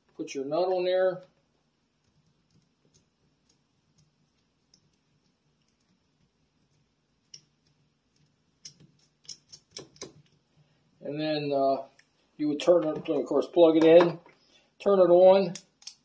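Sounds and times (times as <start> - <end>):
small parts clicking: 7.3 - 10.4, 15.6 - 16.0.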